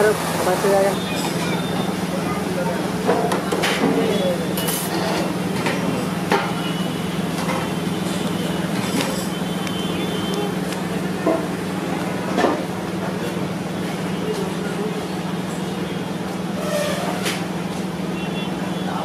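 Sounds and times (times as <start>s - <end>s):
plates and utensils clinking: 3.1s - 6.6s.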